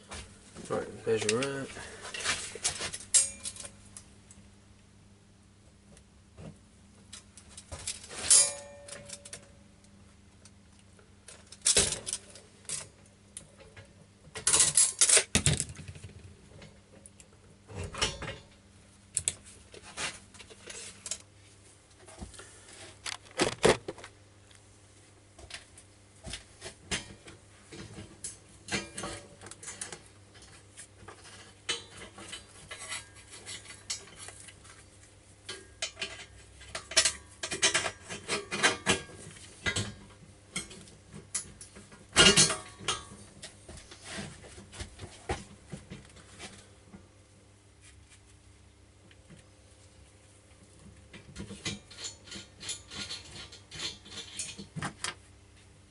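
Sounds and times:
metal tools clinking and rattling: 2.2s - 3.8s, 7.8s - 9.5s, 14.4s - 15.3s, 35.5s - 40.0s, 41.4s - 43.2s, 51.4s - 54.7s.

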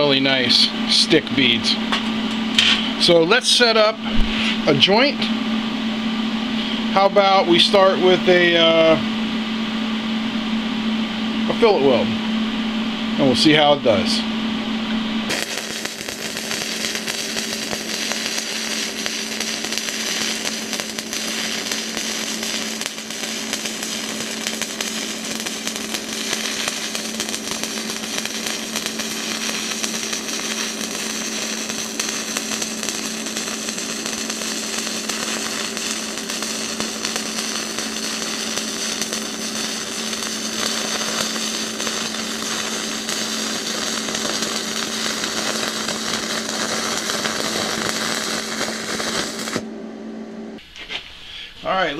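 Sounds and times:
low hum: 0.0s - 50.6s
welding arc crackling and hissing: 15.3s - 49.7s.

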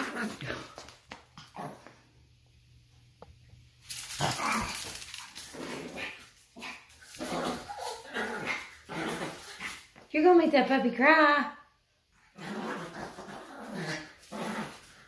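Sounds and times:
small dog barking and growling: 0.0s - 0.8s, 4.1s - 9.8s.

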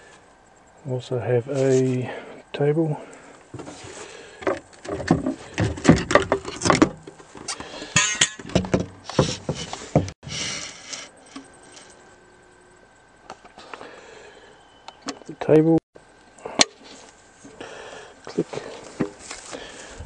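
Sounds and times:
camping table clicking and rattling: 3.4s - 12.0s.

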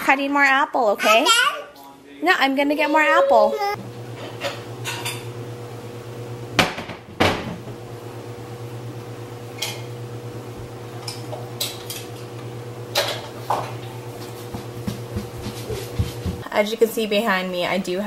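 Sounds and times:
low appliance hum: 0.0s - 18.0s
dishes and utensils clinking: 4.2s - 5.3s, 12.9s - 13.8s.

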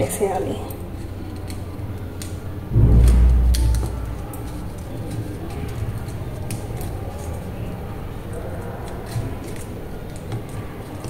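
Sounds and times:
low background rumble: 2.7s - 5.7s.

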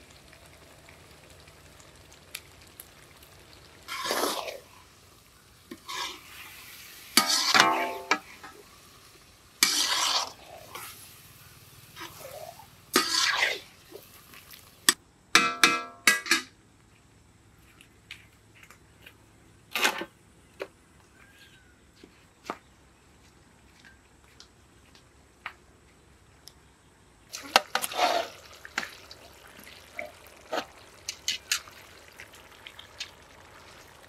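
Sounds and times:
spatula scraping iron pan: 5.7s - 6.5s, 7.2s - 8.6s, 9.6s - 10.9s, 12.0s - 13.6s
metallic clang: 7.2s - 8.4s, 15.4s - 16.5s.

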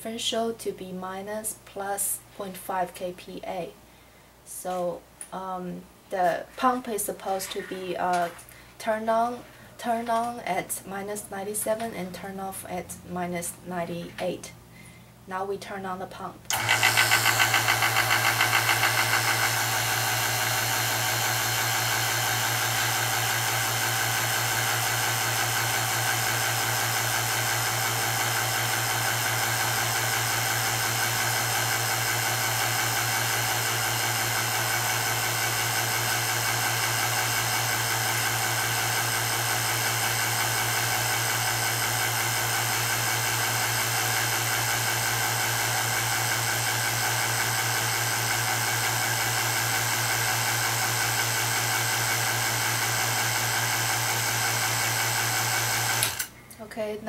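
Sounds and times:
vacuum pump humming: 16.5s - 56.4s.

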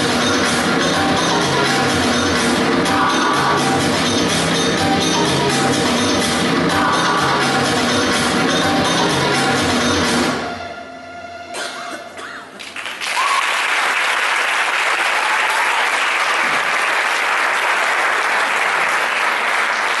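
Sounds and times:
dance music: 0.0s - 12.5s
audience applause: 12.6s - 20.0s.

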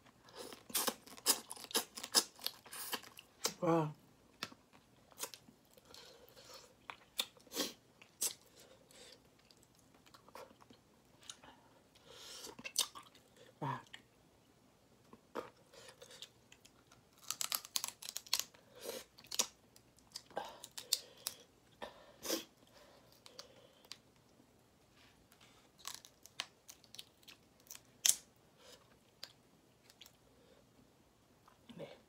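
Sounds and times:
shrimp shells cracking: 17.2s - 18.6s.

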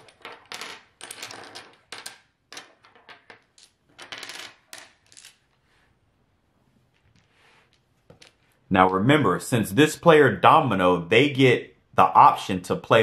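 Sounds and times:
dominoes clicking on wooden table: 0.0s - 5.6s.

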